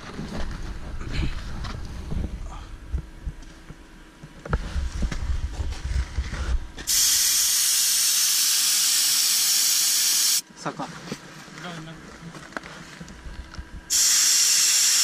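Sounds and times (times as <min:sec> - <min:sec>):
loud steady hiss: 0:06.9 - 0:10.4, 0:13.9 - 0:15.0.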